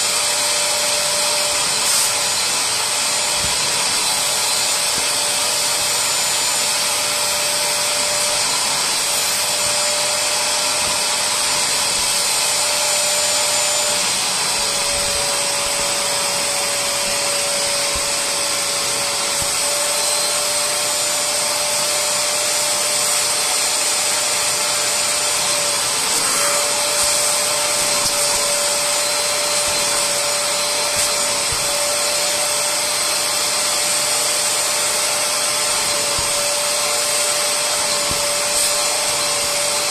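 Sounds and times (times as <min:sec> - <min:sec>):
spot cleaner suction motor: 0:00.0 - 0:39.9.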